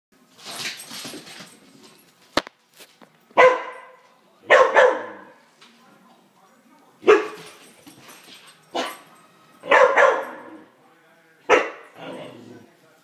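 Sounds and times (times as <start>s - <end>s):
dog barking: 3.4s - 5.4s, 7.0s - 7.5s, 8.7s - 10.6s, 11.5s - 12.2s.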